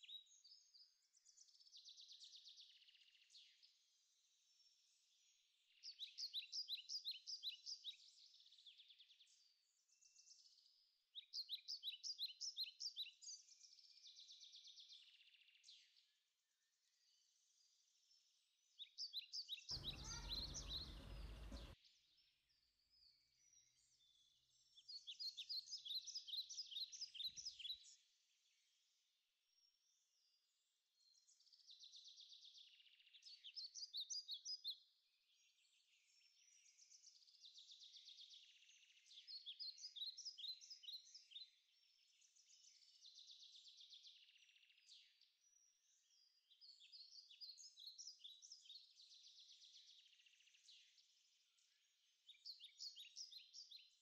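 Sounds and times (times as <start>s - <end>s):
birds trilling: 19.8s - 21.8s.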